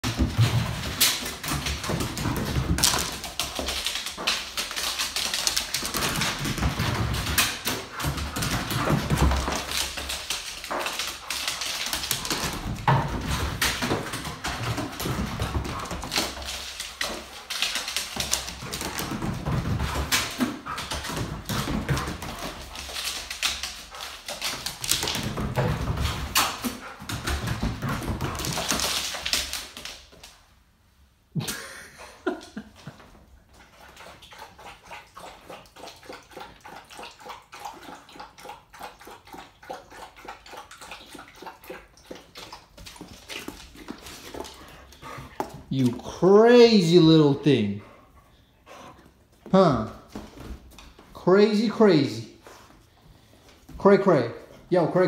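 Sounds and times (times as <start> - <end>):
dog claws clicking on wood floor: 0.0 - 30.4.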